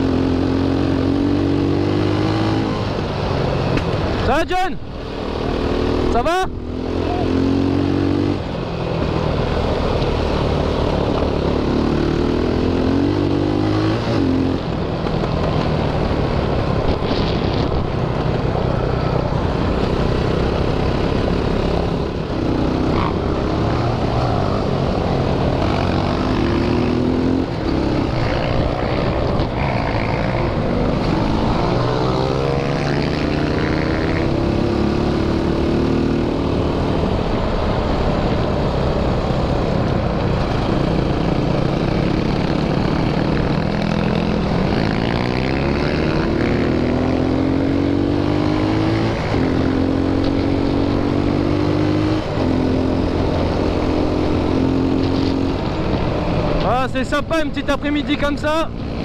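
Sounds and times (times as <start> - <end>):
quad bike engine revving: 20.0 - 36.8, 40.6 - 55.6.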